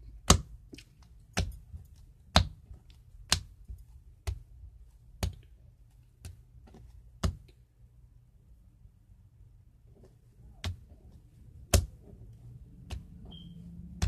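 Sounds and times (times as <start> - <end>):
slime smacking on wooden table: 11.6 - 12.1.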